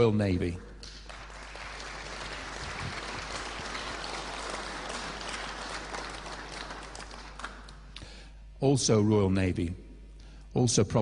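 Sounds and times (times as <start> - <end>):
audience applauding: 1.0 - 7.8.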